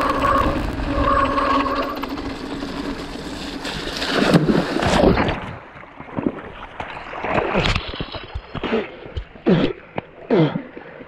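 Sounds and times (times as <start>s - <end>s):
bike splashing through water: 3.2s - 6.2s.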